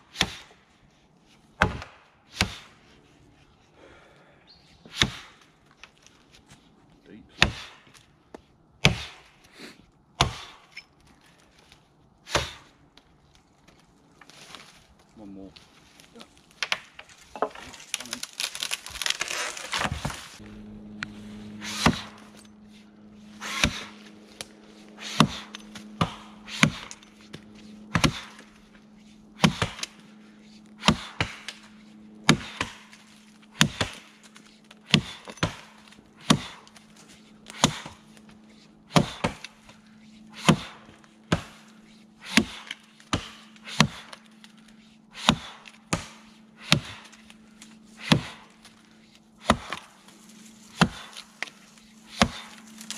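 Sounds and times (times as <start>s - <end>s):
axe chopping tree: 0.0s - 0.5s, 1.6s - 2.8s, 4.8s - 6.1s, 7.3s - 9.4s, 10.1s - 10.8s, 11.6s - 12.8s, 16.4s - 20.4s, 21.0s - 22.5s, 23.4s - 52.9s
tree stem crackling and rustling: 5.4s - 7.2s, 10.9s - 12.2s, 12.8s - 38.8s, 46.9s - 52.9s
faint low hum: 19.5s - 52.9s.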